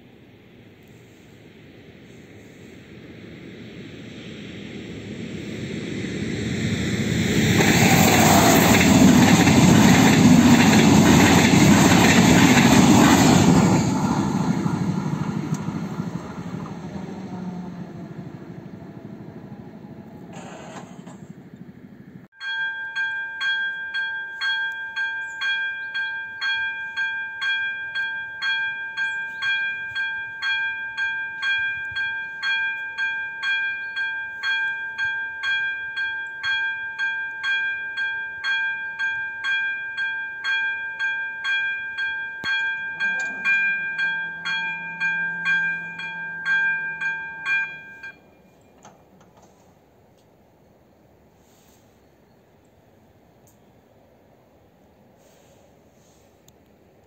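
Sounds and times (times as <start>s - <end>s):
level crossing warning bell: 22.4s - 49.1s.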